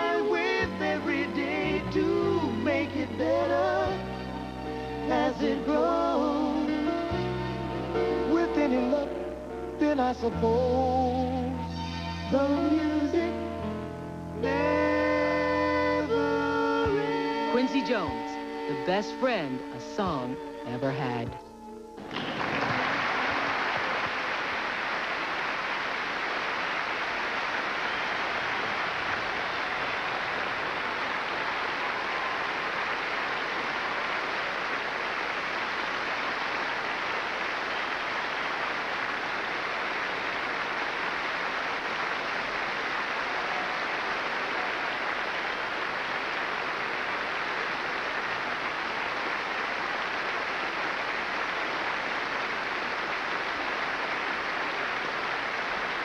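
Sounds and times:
audience applauding: 0:22.0 - 0:56.0.

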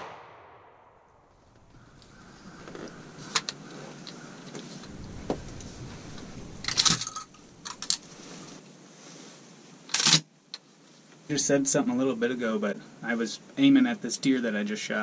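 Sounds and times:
metallic rattles: 0:04.9 - 0:08.1.

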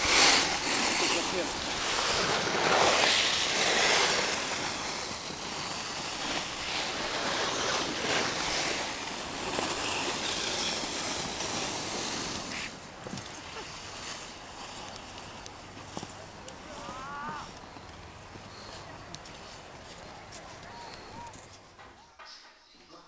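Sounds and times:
skis scraping over packed snow: 0:00.0 - 0:21.7.

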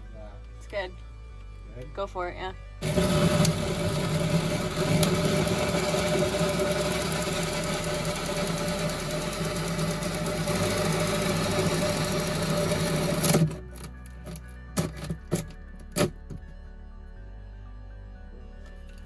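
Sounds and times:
power tool cutting plywood: 0:02.8 - 0:13.7.

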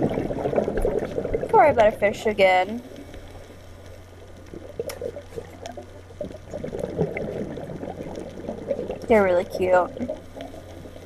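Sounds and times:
muffled underwater gurgling: 0:00.0 - 0:03.5, 0:04.2 - 0:11.0
steady low hum: 0:00.0 - 0:11.0.

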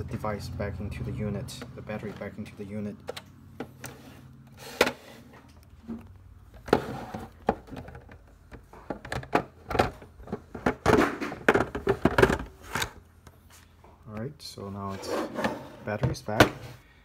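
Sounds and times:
plastic knocks and scrapes: 0:04.8 - 0:13.0.

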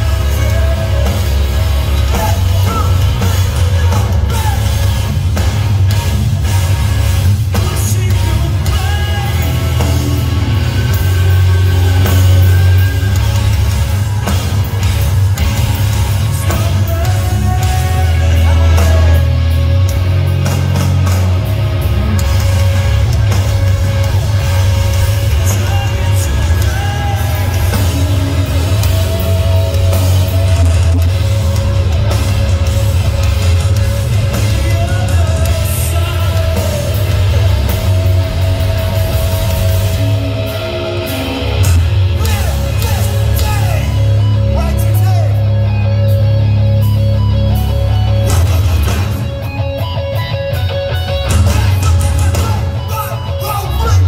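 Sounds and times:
bass guitar: 0:00.0 - 0:54.0
distorted electric guitars: 0:00.0 - 0:54.0
drums: 0:00.0 - 0:54.0
person singing: 0:16.3 - 0:19.4.

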